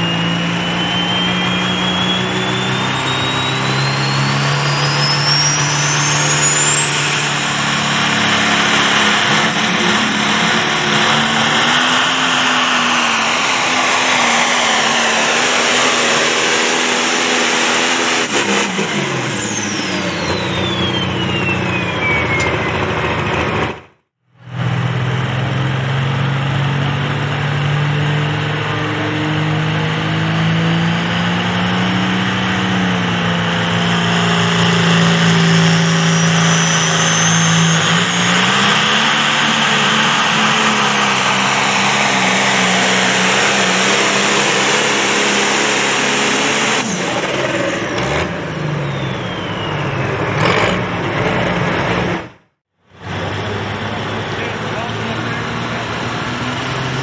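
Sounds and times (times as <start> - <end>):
turbo whistle: 0.0 - 23.1, 33.8 - 47.2, 48.1 - 50.7
diesel tractor engine running hard: 0.0 - 57.0.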